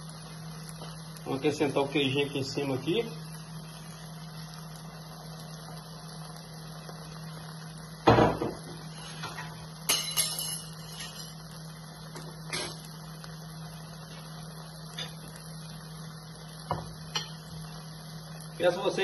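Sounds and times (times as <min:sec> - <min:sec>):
steady low hum: 0:00.0 - 0:19.0
loud knock on grill: 0:08.0 - 0:08.8, 0:16.6 - 0:16.9.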